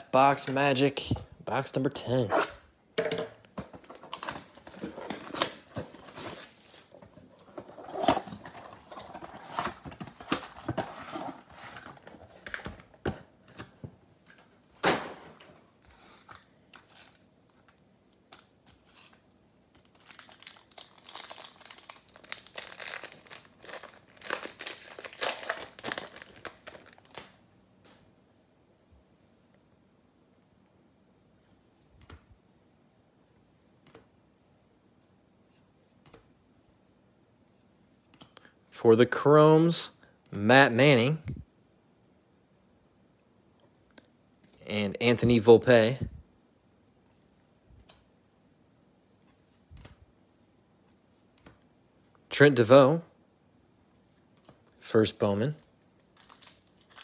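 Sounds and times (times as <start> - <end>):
card packs being torn open: 19.8 - 27.4, 56.1 - 57.0.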